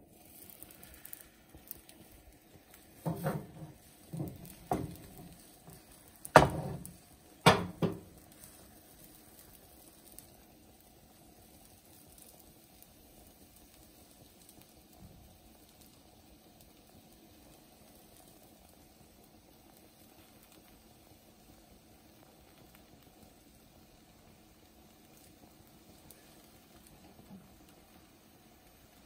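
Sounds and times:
dough hissing on hot pan: 0.0 - 29.0
rolling pin knocking on pan: 3.0 - 8.2.

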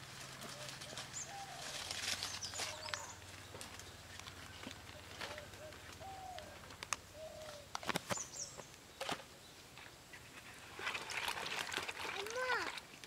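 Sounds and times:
rustling scrape: 0.0 - 3.1
birds chirping: 0.0 - 10.6.

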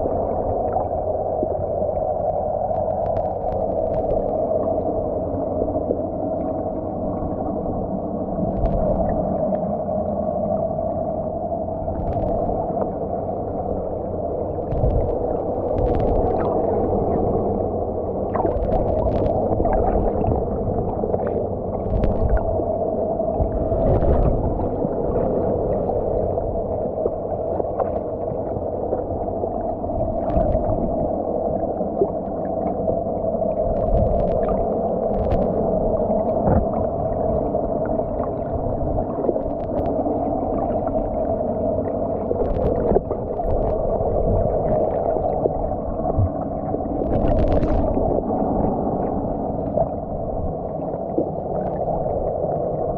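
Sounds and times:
muffled underwater rumble: 0.0 - 52.9
clicks and crackles: 18.4 - 19.5, 39.3 - 40.0, 47.0 - 47.9.

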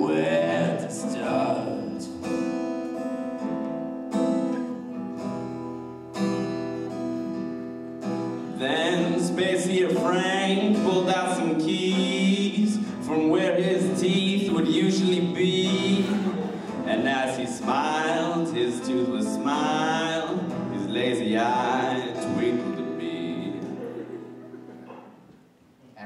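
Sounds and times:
man singing: 0.0 - 2.5, 8.4 - 24.0
acoustic guitar chords: 0.0 - 25.3.

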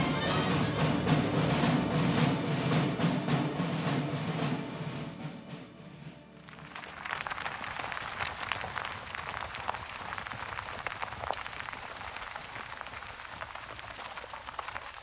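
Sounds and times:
cattle hooves trampling dirt: 6.5 - 15.0.

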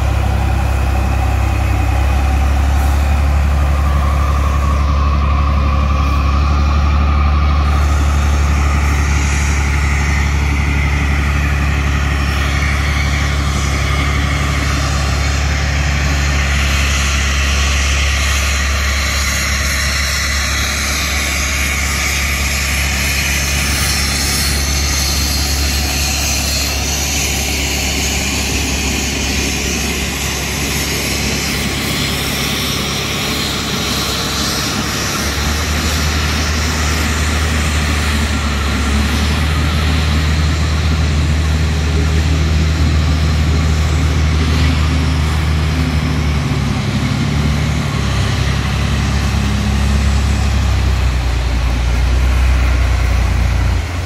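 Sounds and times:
tractor engine drone: 0.0 - 54.0.

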